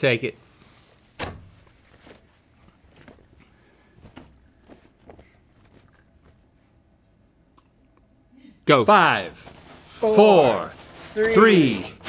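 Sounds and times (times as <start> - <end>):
sack thump: 1.2 - 2.2.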